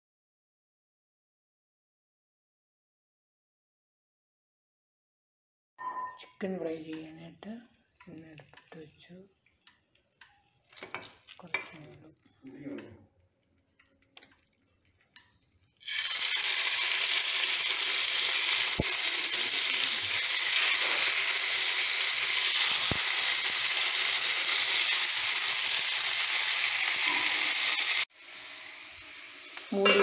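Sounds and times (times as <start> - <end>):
chicken sizzling in hot oil: 7.7 - 12.3, 13.4 - 30.0.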